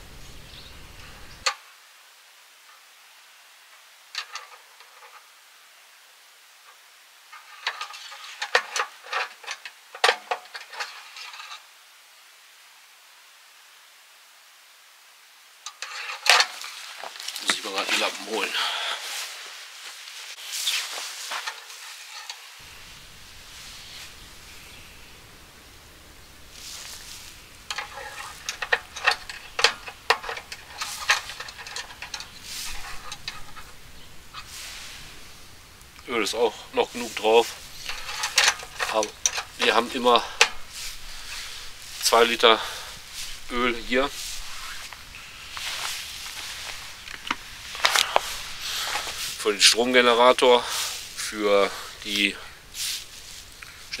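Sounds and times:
clicks and scraping on engine: 4.1s - 5.3s, 7.3s - 11.6s, 15.6s - 24.2s, 26.5s - 54.0s
cloth rag rustling: 15.7s - 25.6s, 26.4s - 54.0s.

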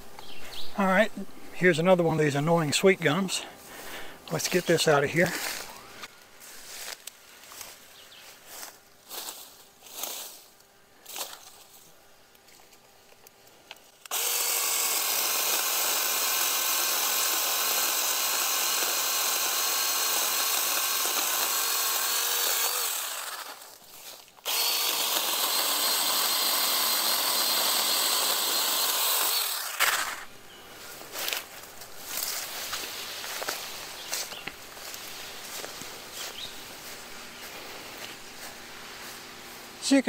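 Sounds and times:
leaves and branches swishing: 6.4s - 10.5s, 30.8s - 39.8s
mini chainsaw cutting wood: 14.0s - 30.3s.

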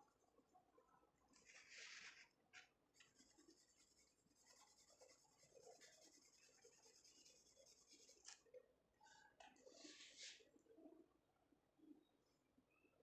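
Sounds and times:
brush rubbing over paper: 1.4s - 2.3s, 3.0s - 8.4s.

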